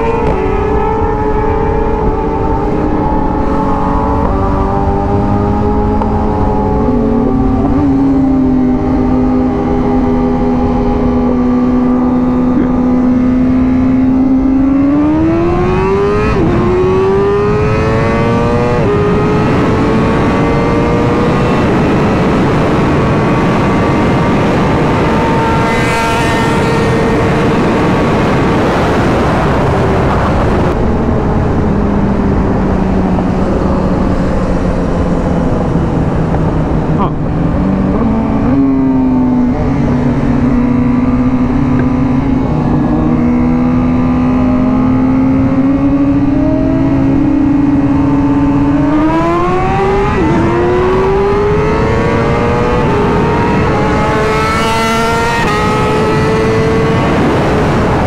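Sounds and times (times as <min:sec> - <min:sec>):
motorcycle engine revving: 0:00.0 - 0:58.0
wind rush: 0:00.0 - 0:58.0.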